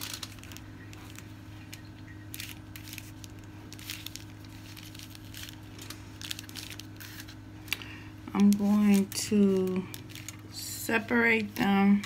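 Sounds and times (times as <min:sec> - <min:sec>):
aluminium foil crinkling: 0:00.0 - 0:12.0
steady low hum: 0:00.0 - 0:12.0.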